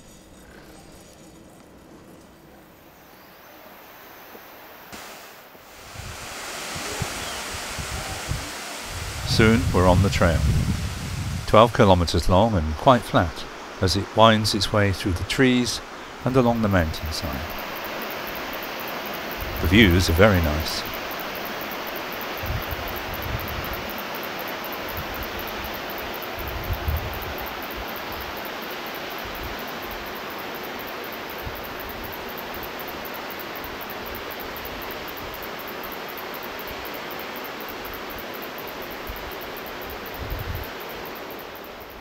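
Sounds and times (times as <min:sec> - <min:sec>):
steady rushing outdoor noise: 0:00.0 - 0:42.0
wind buffeting microphone: 0:05.8 - 0:12.2.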